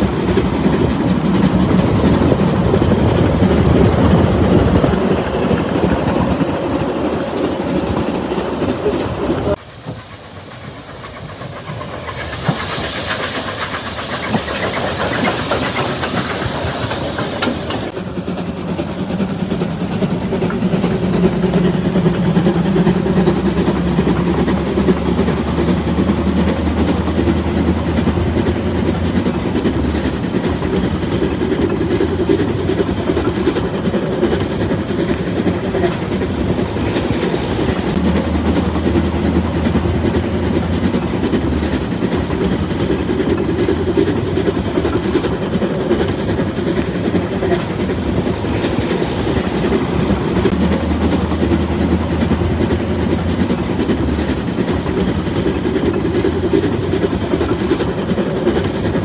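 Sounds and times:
loud steam hiss: 0.0s - 18.2s, 19.0s - 59.0s
steam train running: 0.0s - 59.0s.

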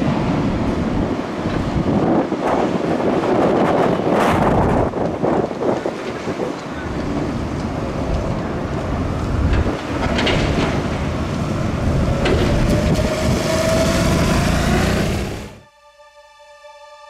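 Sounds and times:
wind on microphone: 0.0s - 15.3s
traffic and trams rumbling: 0.0s - 15.6s.

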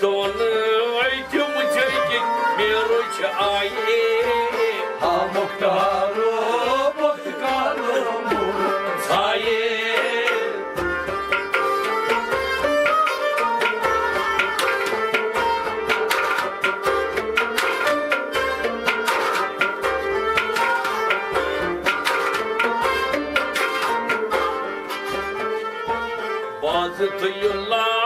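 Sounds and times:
man singing: 0.0s - 10.8s, 26.6s - 28.0s
stringed instrument melody: 0.0s - 28.0s
goblet drum beating: 0.1s - 27.7s.

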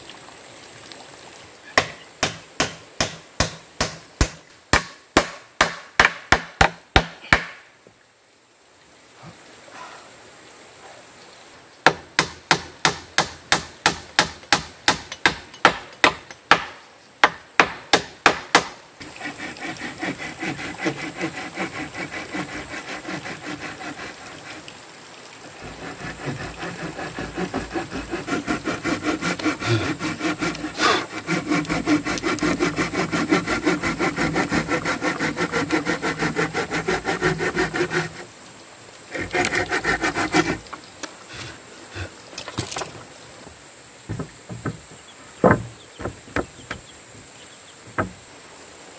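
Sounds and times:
hand saw cutting wood: 1.8s - 7.5s, 17.6s - 24.7s, 25.5s - 38.3s, 39.1s - 42.8s
sharp knocks on wood: 1.8s - 7.6s, 11.8s - 18.8s, 44.1s - 46.8s, 47.9s - 48.2s.

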